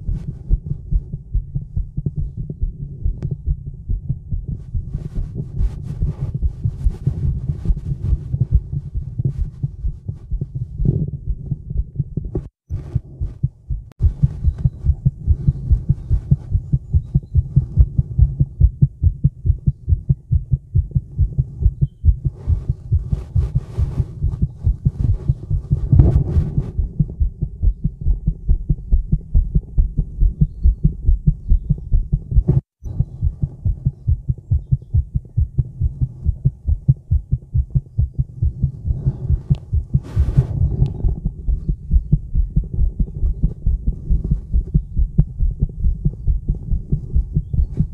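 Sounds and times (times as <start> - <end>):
heartbeat thumps: 0.0 - 47.9
scratchy noises: 4.5 - 18.4, 21.3 - 27.5, 38.5 - 45.4, 46.0 - 47.9.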